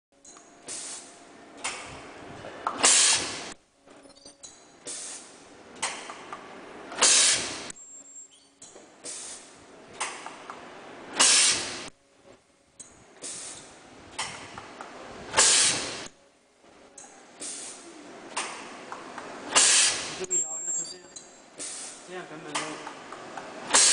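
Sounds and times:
welding machine hissing: 2.8 - 3.6, 7.0 - 7.7, 11.2 - 11.9, 15.4 - 16.1, 19.5 - 20.6, 23.7 - 23.9.

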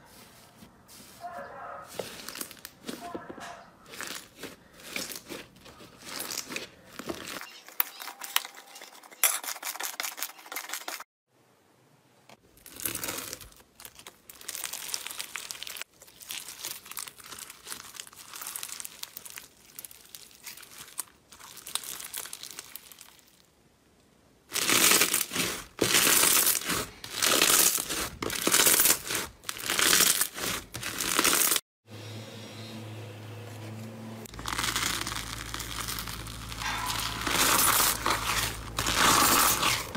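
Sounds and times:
slime squeezing and crackling: 3.8 - 7.5, 12.6 - 23.5, 24.5 - 31.6, 34.3 - 39.9.

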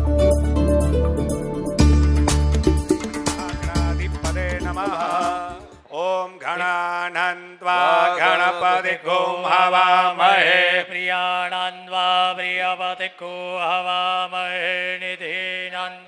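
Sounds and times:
music: 0.0 - 5.9
man chanting melodically: 3.4 - 9.5.

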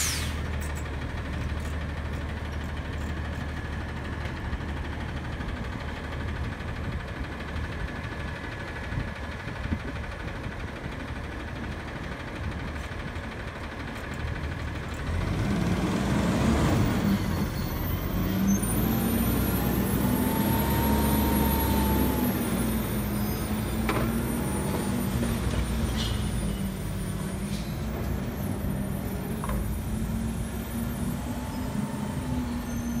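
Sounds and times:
faint hydraulic whine: 0.0 - 1.8, 17.0 - 33.0
diesel engine revving: 15.0 - 33.0.

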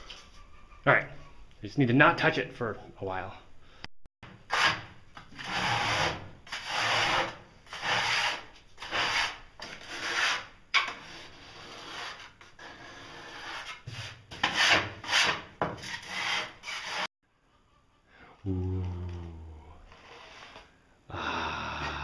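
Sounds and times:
trowel scraping mortar: 4.5 - 17.1.

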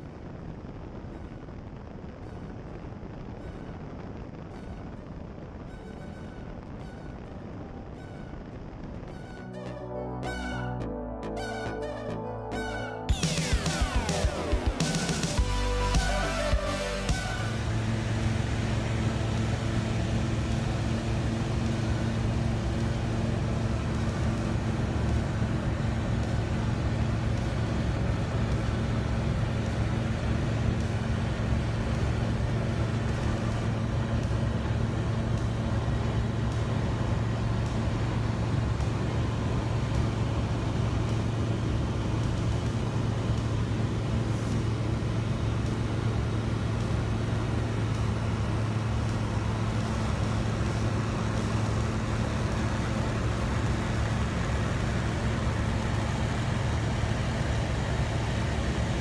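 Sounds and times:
light aircraft engine drone: 12.6 - 59.0.

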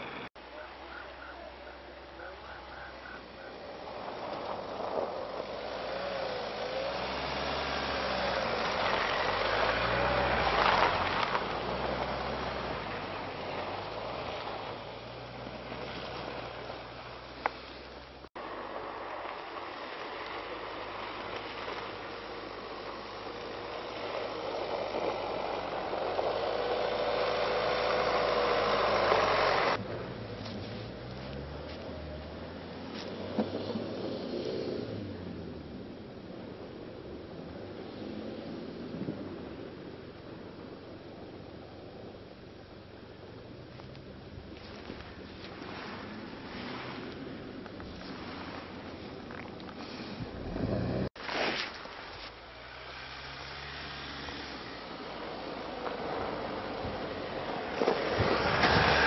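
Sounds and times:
tyres on snow: 0.0 - 59.0
car engine revving: 25.0 - 30.2.

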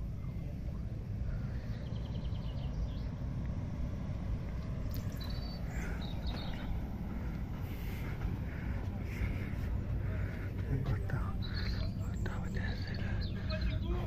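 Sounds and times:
low outdoor rumble: 0.0 - 14.0
faint high bird chirps: 4.9 - 6.8.

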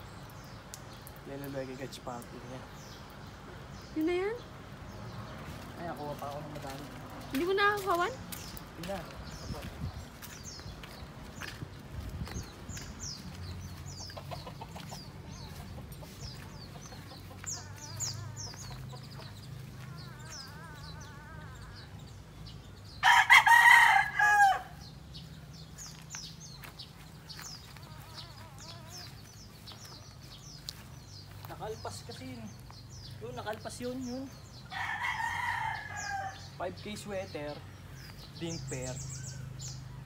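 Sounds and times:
small birds chirping: 0.0 - 40.0
rooster crowing: 23.0 - 24.8, 34.7 - 36.5.

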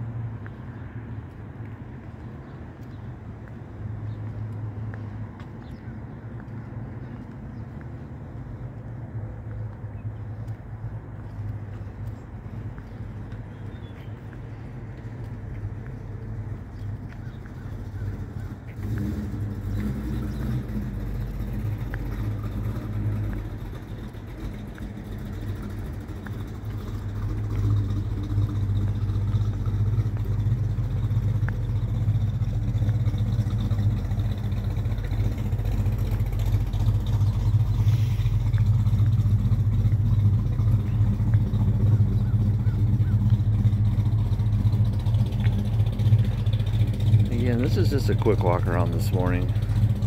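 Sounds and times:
engine idling: 10.4 - 50.0.

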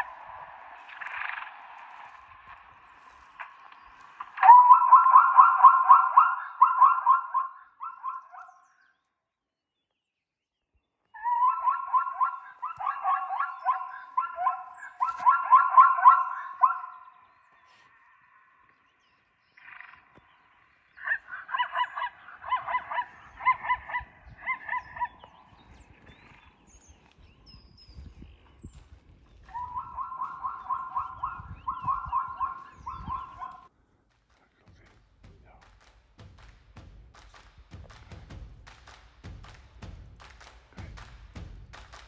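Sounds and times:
zebra barking calls: 0.0 - 8.8, 11.2 - 18.0, 19.6 - 25.6, 29.4 - 33.7.

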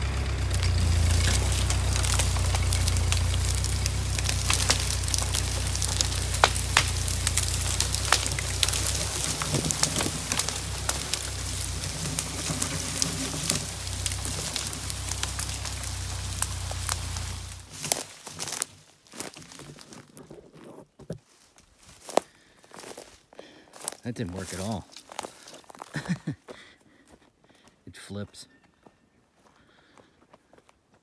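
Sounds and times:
tractor engine running: 0.0 - 20.2
branches crackling and snapping: 0.0 - 26.1.

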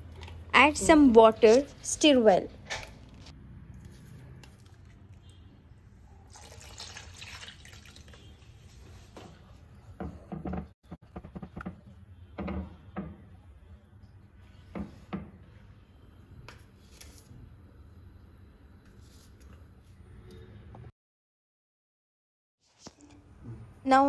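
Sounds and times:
water pouring into paste: 6.2 - 8.4.

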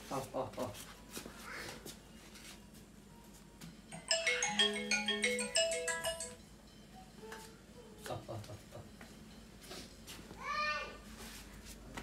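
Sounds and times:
phone ringtone melody: 3.9 - 7.2.

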